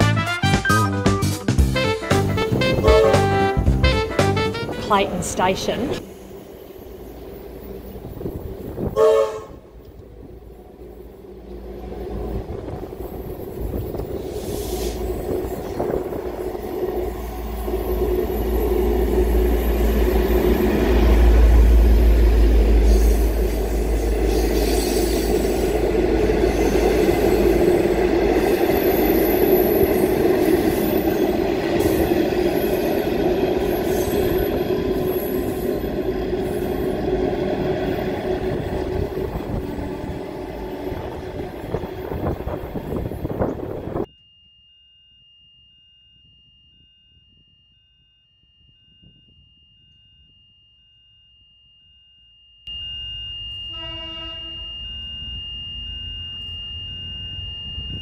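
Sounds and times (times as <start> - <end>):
diesel locomotive engine rumble: 1.3 - 44.1
train carriages rolling by: 1.6 - 44.1.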